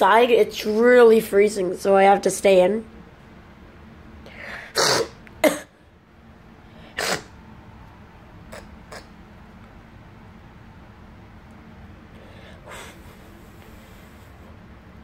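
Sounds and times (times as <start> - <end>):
person coughing: 4.6 - 5.8, 7.0 - 7.3.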